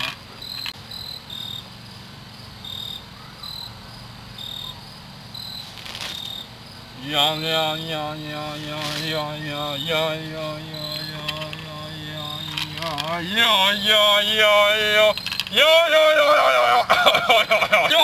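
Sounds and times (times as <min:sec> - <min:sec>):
cricket chirping: 0:00.0 - 0:18.0
loud held pitched tone: 0:07.0 - 0:16.0.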